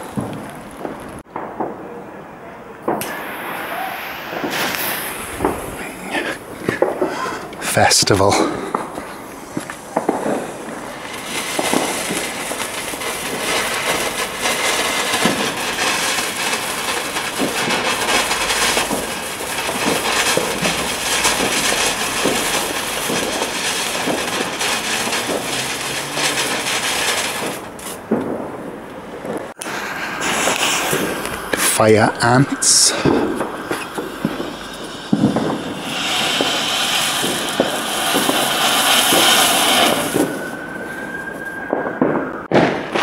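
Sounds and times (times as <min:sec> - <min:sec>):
firework fountain hissing: 0:00.0 - 0:01.8, 0:02.8 - 0:43.0
firework crackles: 0:00.0 - 0:43.0.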